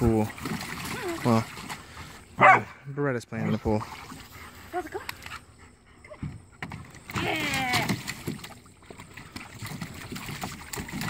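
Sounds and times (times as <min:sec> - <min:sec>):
water splashing in a plastic pool: 0:00.0 - 0:11.0.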